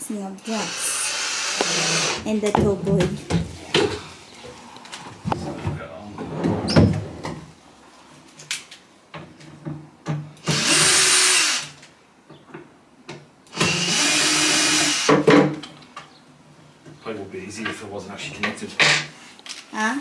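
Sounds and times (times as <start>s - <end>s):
cordless drill driving screws: 0.4s - 2.2s, 10.4s - 11.8s, 13.5s - 15.2s.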